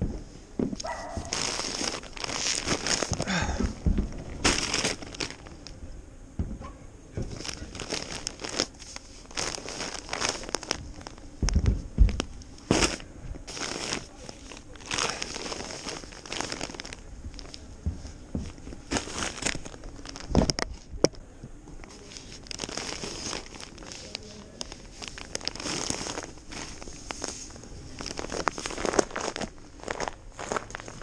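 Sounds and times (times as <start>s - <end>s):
sacks sliding on metal: 0.4s - 5.5s, 7.3s - 11.2s, 12.6s - 17.6s, 18.5s - 20.2s, 22.0s - 31.0s
paper sacks rustling: 0.7s - 5.7s, 7.2s - 21.0s, 21.9s - 31.0s
sharp thumps: 6.4s - 8.4s, 10.0s - 13.6s.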